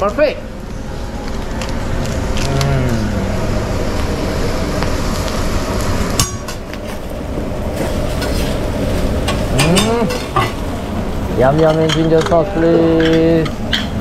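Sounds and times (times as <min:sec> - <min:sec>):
steady rushing noise: 0:00.0 - 0:14.0
metal spatulas scraping griddle: 0:07.8 - 0:08.6.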